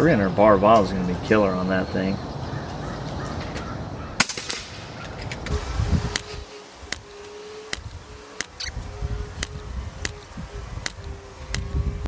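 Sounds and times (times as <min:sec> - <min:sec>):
air rifle shot cracks: 0:04.2 - 0:05.2.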